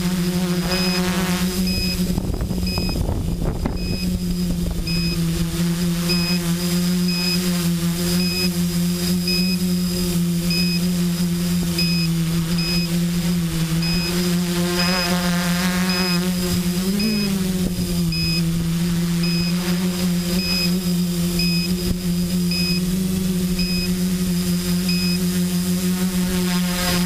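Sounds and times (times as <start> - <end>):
drone motors and propellers humming: 0.0 - 27.0.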